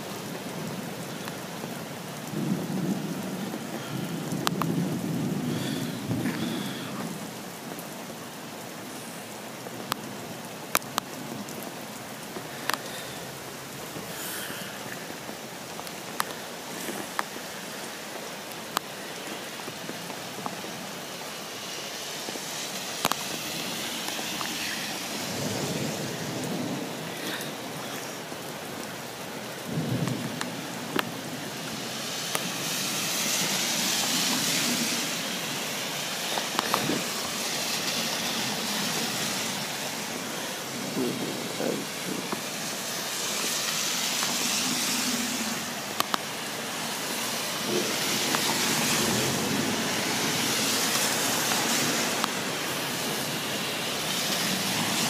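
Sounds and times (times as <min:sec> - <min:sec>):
heavy rain pouring: 0:00.0 - 0:55.0
low thunder rumbles: 0:02.3 - 0:07.2, 0:23.6 - 0:27.9, 0:29.6 - 0:31.5.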